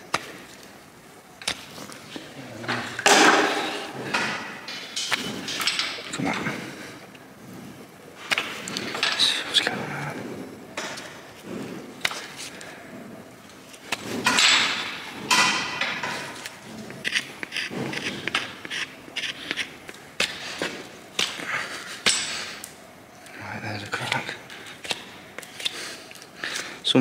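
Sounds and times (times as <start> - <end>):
knife scraping hoof: 16.4 - 20.5.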